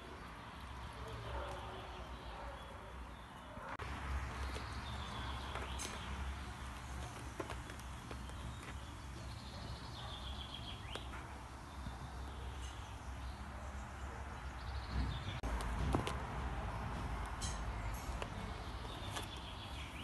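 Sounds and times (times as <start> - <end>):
rustling and handling rumble: 3.8 - 13.4, 14.8 - 20.0.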